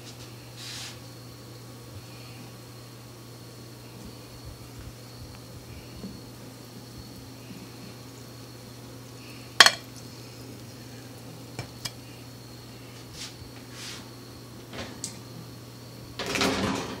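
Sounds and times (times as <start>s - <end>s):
steady low hum: 0.0s - 16.2s
short brushing sounds: 0.6s - 1.0s, 13.2s - 14.1s
dishes and utensils clinking: 9.6s - 9.9s
dishes clattering: 9.6s - 9.9s, 11.6s - 12.0s.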